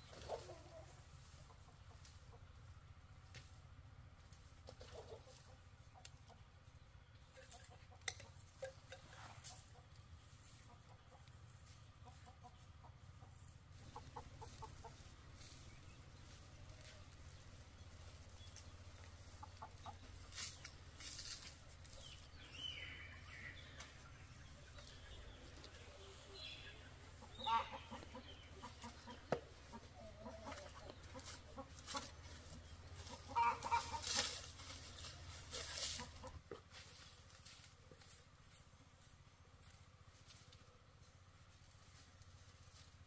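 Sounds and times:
chickens clucking: 0:00.0 - 0:43.0
broom sweeping concrete steps: 0:20.2 - 0:22.0.

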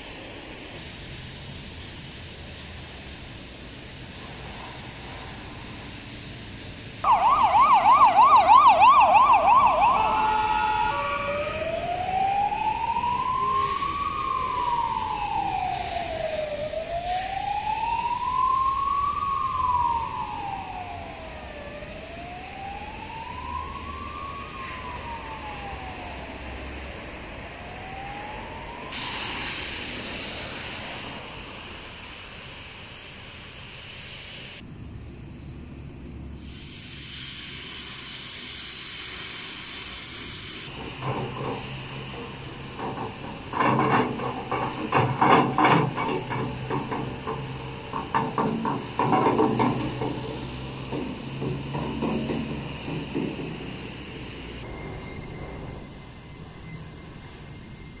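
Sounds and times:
ambulance siren: 0:07.0 - 0:32.0, 0:40.6 - 0:58.0.

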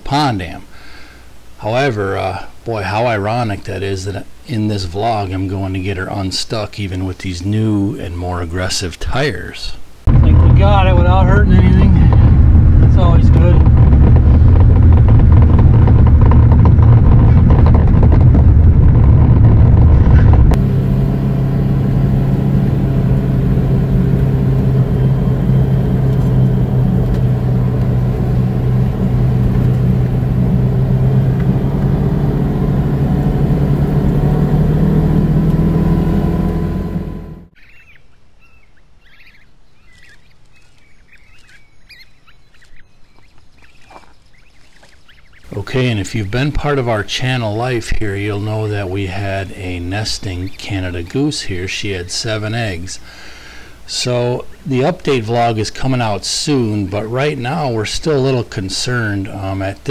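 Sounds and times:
diesel engine running loudly: 0:10.1 - 0:37.6
vehicle driving on gravel road: 0:10.1 - 0:37.6
small birds chirping: 0:37.5 - 0:46.6.

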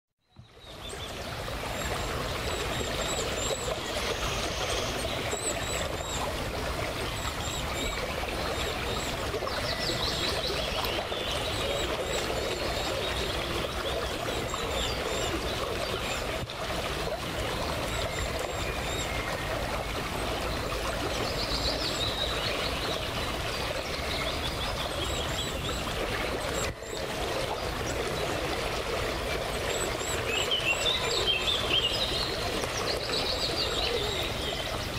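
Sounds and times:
river water flowing and splashing: 0:00.2 - 0:34.9.

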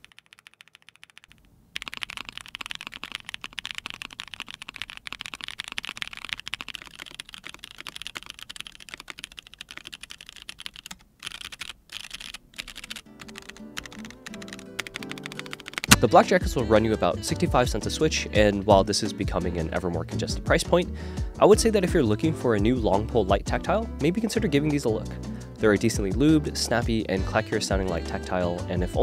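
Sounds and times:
clacky keyboard keystrokes: 0:00.0 - 0:16.0
music: 0:13.1 - 0:29.0.

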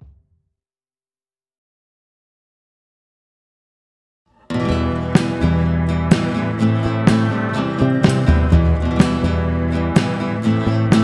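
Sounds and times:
drum hit over held chord: 0:04.5 - 0:11.0.

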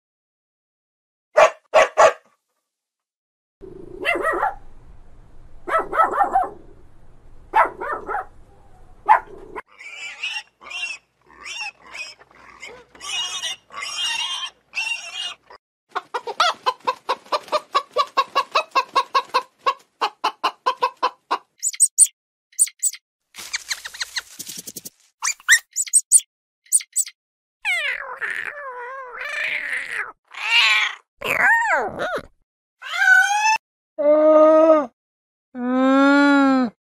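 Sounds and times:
dog barking: 0:01.4 - 0:02.3, 0:04.0 - 0:04.6, 0:05.6 - 0:06.6, 0:07.5 - 0:08.4, 0:09.0 - 0:09.4
pig squealing: 0:09.6 - 0:15.6, 0:25.2 - 0:33.6
hens clucking: 0:15.9 - 0:22.0.

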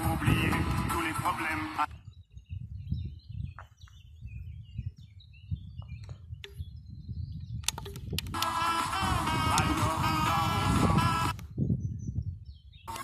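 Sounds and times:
low wind rumble: 0:00.0 - 0:13.0
faint bird chirps: 0:01.9 - 0:07.8
sharp clicks and crackles: 0:07.6 - 0:08.6.

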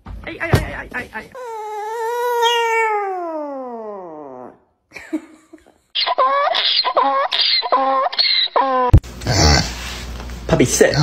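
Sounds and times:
dog howling: 0:01.4 - 0:04.6
donkey braying: 0:01.4 - 0:04.6.

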